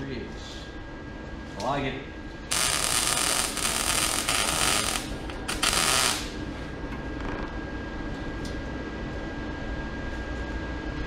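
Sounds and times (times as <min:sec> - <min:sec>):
low background hum: 0:00.0 - 0:11.0
welding arc crackling: 0:02.5 - 0:06.4.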